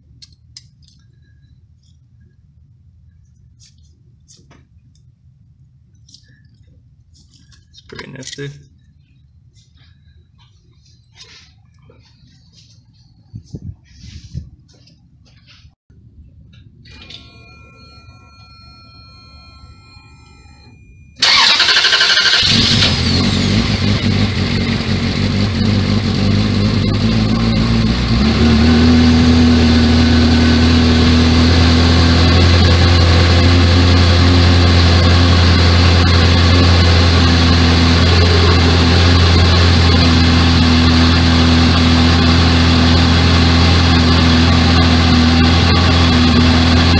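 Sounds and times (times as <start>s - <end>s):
car engine starting and idling: 16.8s - 46.9s.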